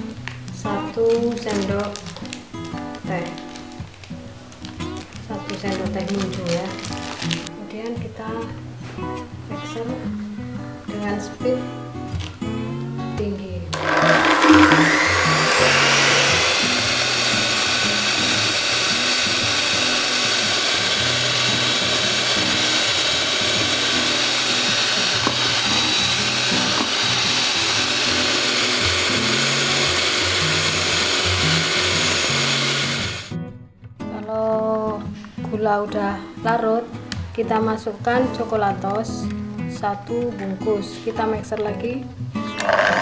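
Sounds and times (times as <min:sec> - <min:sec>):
electric hand mixer whirring: 0:13.8 - 0:33.3, 0:42.6 - 0:43.0.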